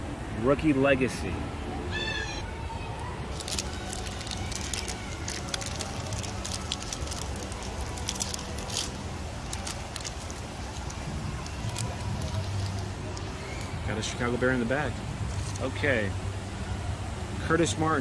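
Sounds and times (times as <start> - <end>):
foil wrapper crinkling: 3.3 - 13.8.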